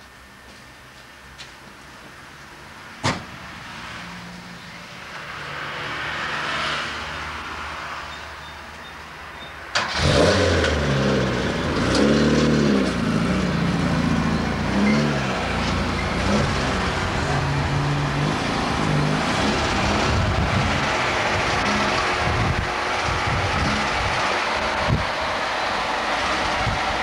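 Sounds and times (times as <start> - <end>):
car engine revving: 9.8 - 27.0.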